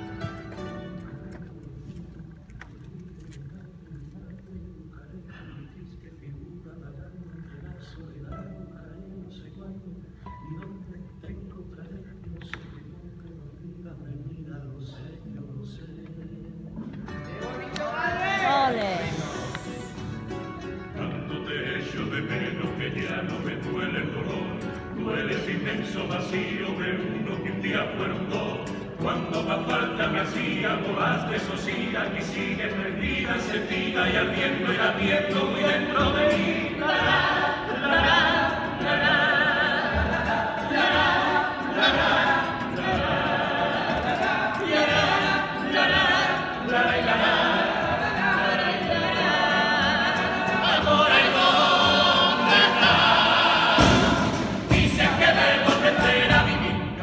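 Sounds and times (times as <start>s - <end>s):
guitar accompaniment: 0.0s - 2.0s, 16.6s - 57.0s
male vocal group singing: 14.5s - 57.0s.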